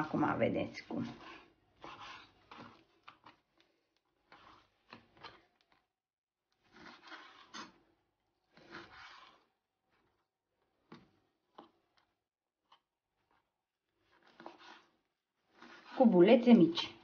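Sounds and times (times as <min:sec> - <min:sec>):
knife slicing meat: 0:01.0 - 0:03.3.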